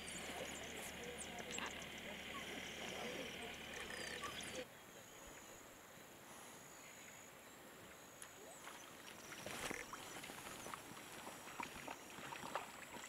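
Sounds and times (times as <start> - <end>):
high twittering calls: 0.0 - 5.6
splashing footsteps in water: 8.2 - 13.0.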